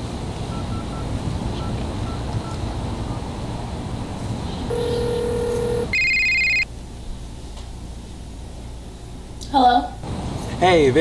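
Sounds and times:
low ringback tone: 4.7s - 6.7s
warbling electronic phone ring: 4.7s - 6.7s.

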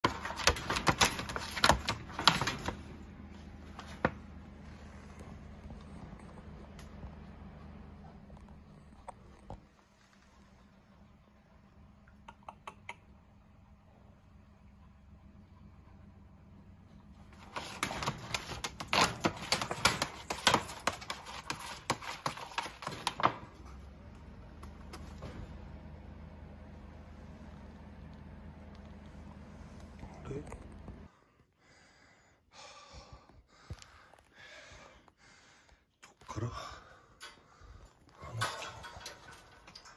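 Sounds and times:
cat rattling wire cage: 0.0s - 3.0s, 17.3s - 23.6s, 38.3s - 39.9s
low steady hum: 0.0s - 21.8s, 23.3s - 31.4s.

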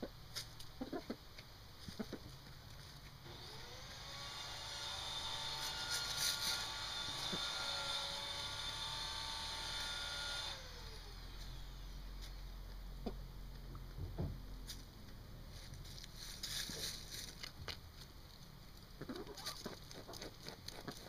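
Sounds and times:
motor whirring: 3.3s - 12.0s.

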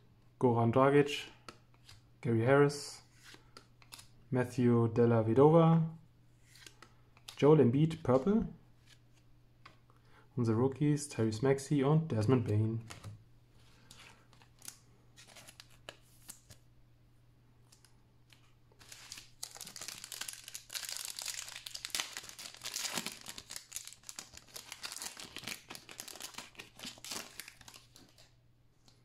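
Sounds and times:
foil wrapper tearing and crinkling: 18.8s - 28.1s.

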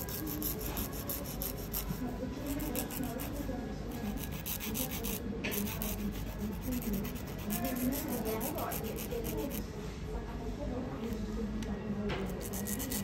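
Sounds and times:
nail file rubbing fingernails: 0.0s - 9.6s, 12.3s - 13.0s.

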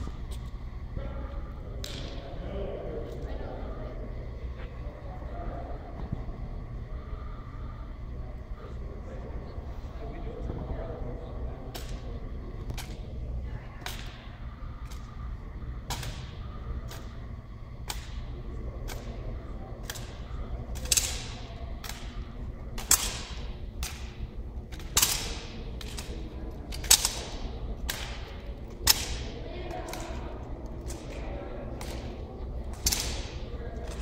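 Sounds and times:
hands slapping rifles with echo: 1.8s - 2.3s, 15.9s - 17.2s, 17.8s - 19.2s, 19.8s - 30.2s, 30.8s - 34.0s.

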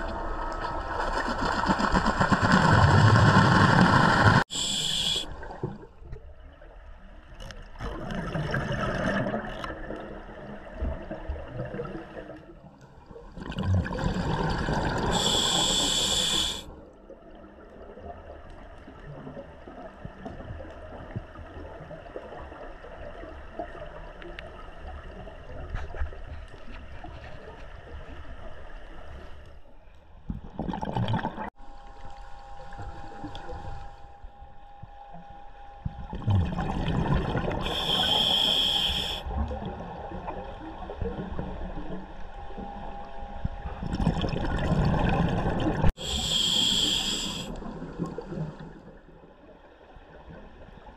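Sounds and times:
underwater exhaled bubbles: 0.0s - 6.0s, 7.7s - 26.6s, 30.3s - 31.6s, 35.9s - 42.8s, 43.5s - 50.9s
regulator inhalation hiss: 4.4s - 5.4s, 15.1s - 16.7s, 37.6s - 39.3s, 46.0s - 47.5s
faint crackle of clicks: 7.2s - 7.9s, 9.5s - 10.1s, 23.5s - 28.2s.

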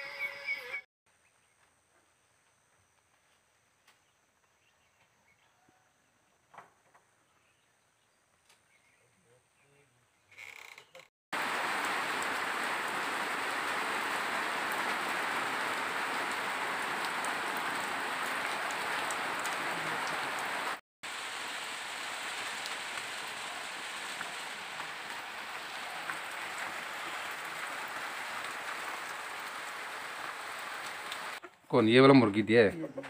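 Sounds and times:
steady rain falling: 11.3s - 31.4s.

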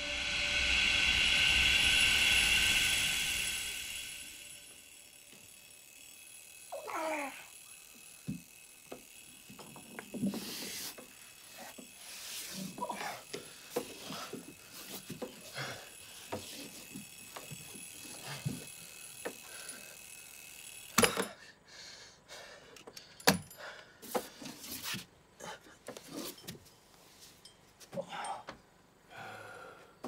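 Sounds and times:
man breathing and grunting: 27.9s - 30.0s.

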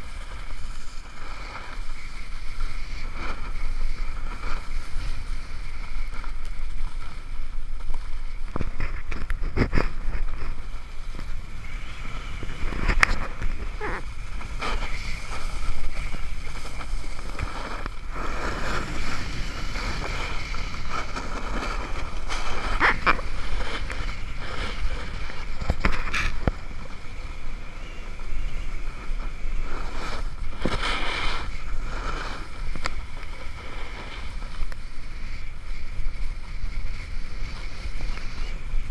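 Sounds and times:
snowboard scraping on snow: 0.0s - 38.9s
wind buffeting microphone: 0.0s - 38.9s.

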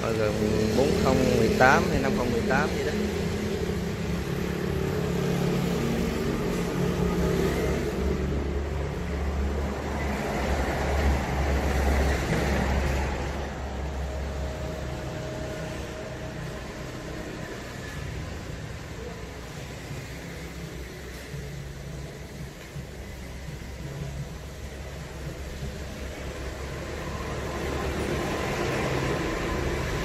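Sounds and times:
vehicle engine passing: 25.0s - 30.0s.

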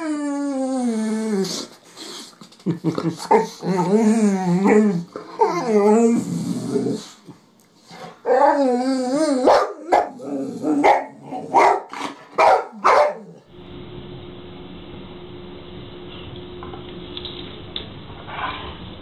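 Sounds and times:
dog howling groan: 0.0s - 1.7s, 3.4s - 7.2s, 8.2s - 11.6s
dog barking: 9.5s - 10.2s, 10.8s - 13.4s
steady low hum: 13.4s - 19.0s.

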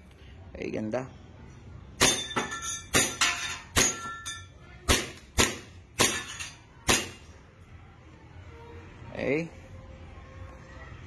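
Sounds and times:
airsoft pistol shots: 4.9s - 6.2s, 6.8s - 7.2s.

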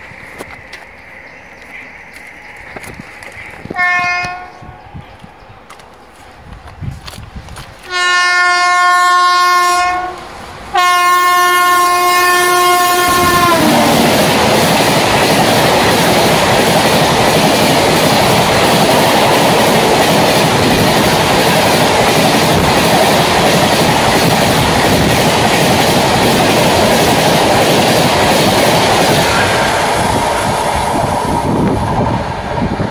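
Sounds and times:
train coaches rushing past: 0.0s - 32.9s
locomotive horn blasts: 3.7s - 4.7s, 7.9s - 14.0s.

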